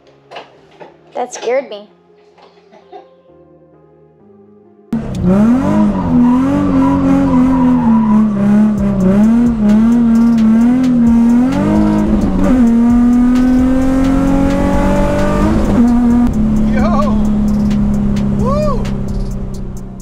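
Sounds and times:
car engine while driving: 5.0 - 20.0.

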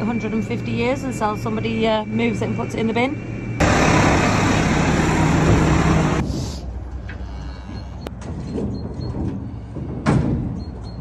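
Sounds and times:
tractor engine running: 3.6 - 6.3.

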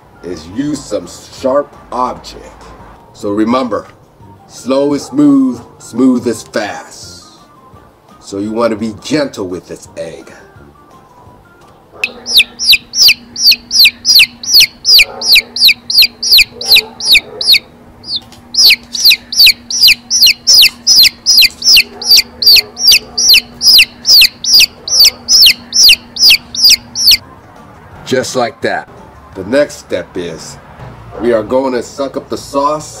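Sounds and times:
baby chick peeping: 12.0 - 27.2.

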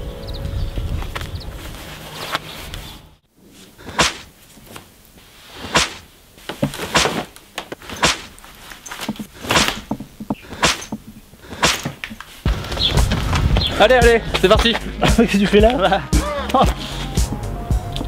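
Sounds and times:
sharp knocks and thumps: 5.7 - 8.3, 9.0 - 13.8.

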